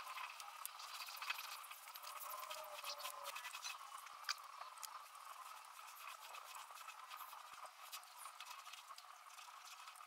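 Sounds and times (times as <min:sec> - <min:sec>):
foam roller crackling on paint: 0:00.0 - 0:10.0.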